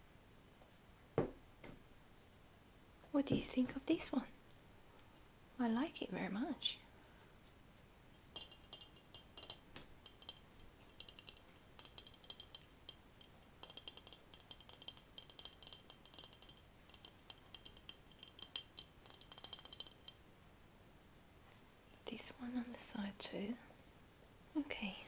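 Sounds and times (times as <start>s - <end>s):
fingers tapping glass vase: 8.4s - 20.2s.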